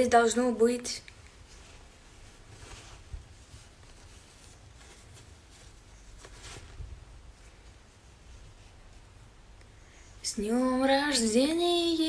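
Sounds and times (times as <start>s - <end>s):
low room hum: 0.0s - 12.0s
cloth rustling: 1.2s - 9.6s.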